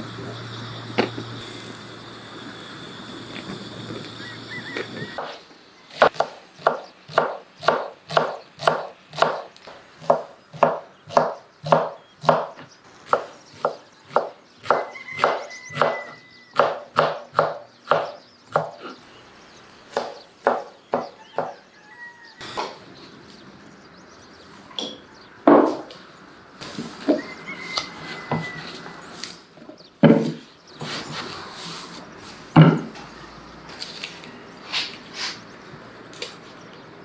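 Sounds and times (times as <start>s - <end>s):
knife chopping on cutting board: 6.0s - 16.0s, 16.6s - 19.0s, 20.0s - 21.6s.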